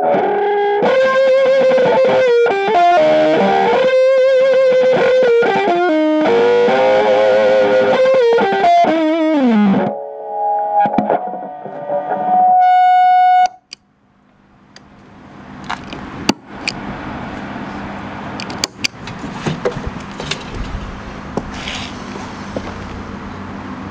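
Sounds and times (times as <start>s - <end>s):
fuzzed electric guitar notes: 0.0s - 13.8s
amplifier hiss and hum: 0.0s - 23.9s.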